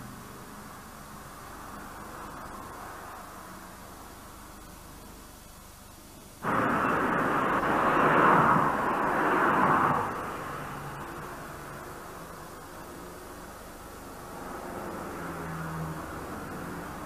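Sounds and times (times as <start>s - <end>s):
faint hiss: 0.0s - 17.0s
vehicle passing by: 6.4s - 17.0s.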